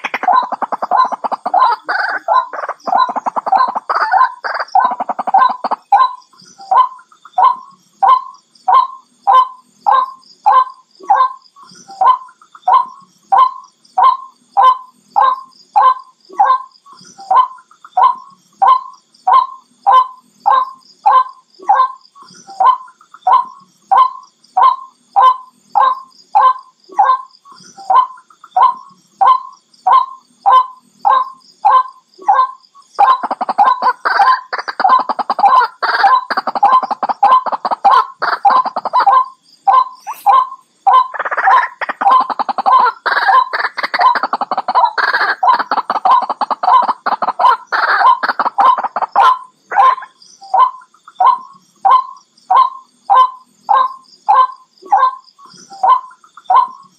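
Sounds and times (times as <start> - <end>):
waterhen calling: 0.0 - 8.2, 32.4 - 55.2.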